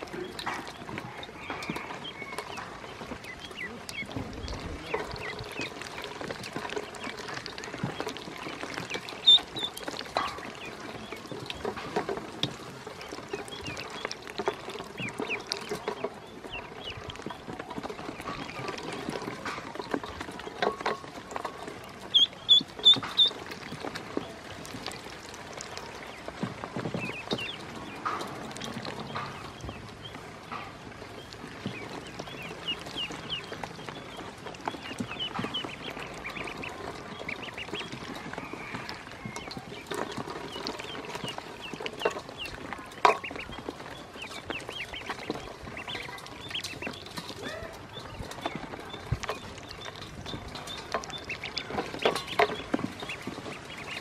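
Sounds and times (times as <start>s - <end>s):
ducklings splashing in metal bowl: 0.0s - 54.0s
duckling peeps: 0.1s - 11.7s, 21.6s - 30.2s, 31.0s - 54.0s.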